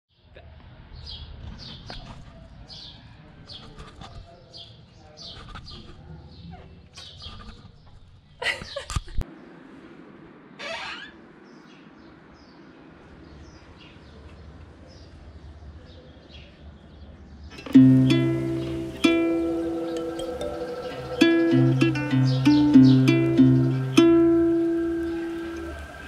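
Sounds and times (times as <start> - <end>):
small birds chirping: 11.4 - 26.0
sweeping bird call: 17.5 - 26.0.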